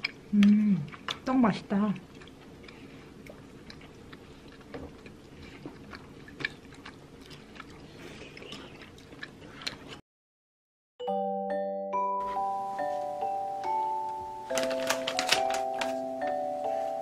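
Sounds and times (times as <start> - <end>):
faint chewing: 0.0 - 10.0.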